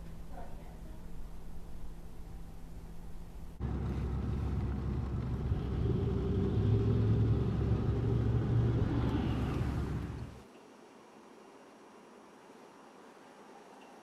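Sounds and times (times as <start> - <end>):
low vehicle rumble: 1.0 - 10.4.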